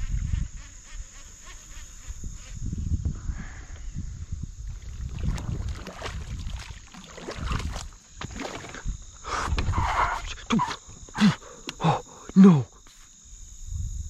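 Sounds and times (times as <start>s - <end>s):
water splashing: 4.8s - 9.0s
paddle strokes through weed: 4.9s - 8.9s.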